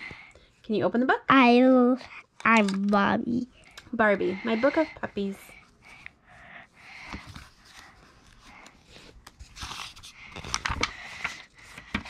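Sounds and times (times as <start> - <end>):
book pages rustling: 6.9 - 12.0.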